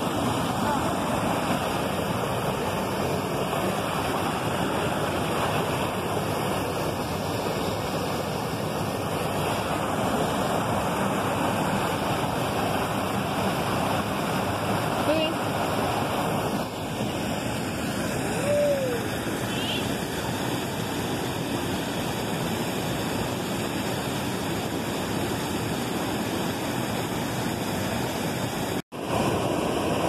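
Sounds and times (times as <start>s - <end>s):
waterfall rushing: 0.0s - 30.0s.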